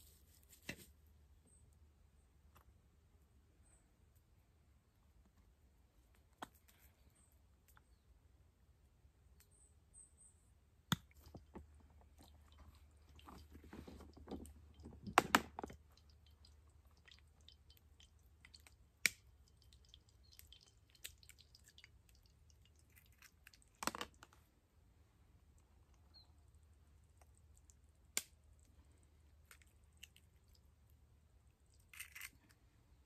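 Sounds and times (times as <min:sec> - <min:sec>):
small clicks and crackles: 0:11.2 - 0:24.5.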